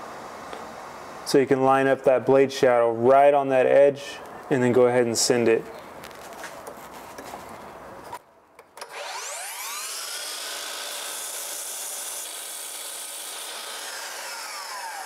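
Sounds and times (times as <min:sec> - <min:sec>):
miter saw motor whining: 0:08.8 - 0:15.0.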